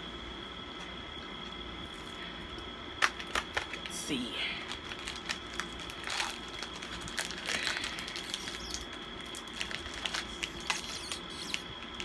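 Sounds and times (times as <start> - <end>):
plastic wrapper crinkling: 3.0 - 4.0, 4.6 - 12.0.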